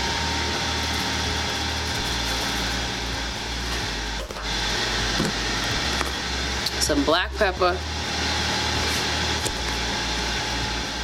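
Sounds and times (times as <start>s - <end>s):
grill fan whirring: 0.0s - 11.0s.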